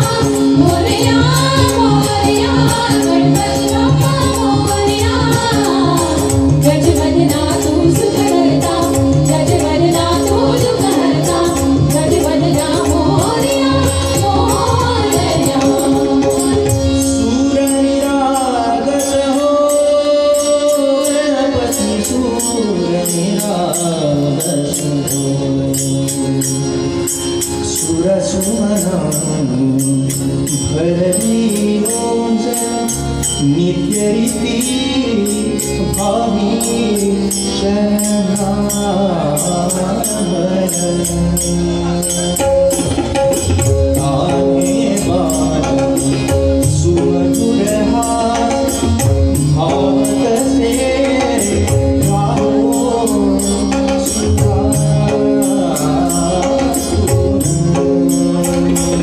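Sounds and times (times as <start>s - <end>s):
harmonium: 0.0s - 59.0s
person singing devotional song: 0.0s - 59.0s
tabla: 0.0s - 59.0s.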